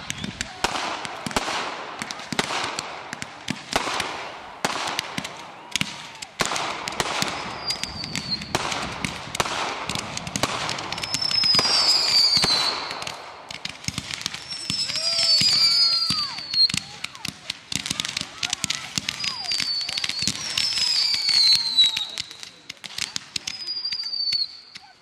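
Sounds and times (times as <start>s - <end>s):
fireworks bangs and crackles: 0.0s - 25.0s
firework whistle: 7.0s - 8.9s, 10.9s - 13.1s, 14.3s - 17.0s, 18.8s - 22.6s, 23.4s - 24.9s.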